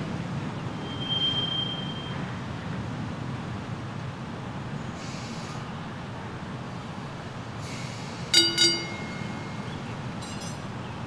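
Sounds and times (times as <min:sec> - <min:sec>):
streetcar rumbling: 0:00.0 - 0:11.0
streetcar gong ringing: 0:08.3 - 0:10.0.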